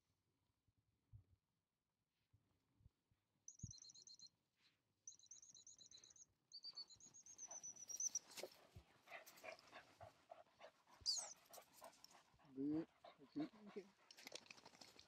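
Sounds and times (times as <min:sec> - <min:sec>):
dog panting: 0:07.4 - 0:15.0.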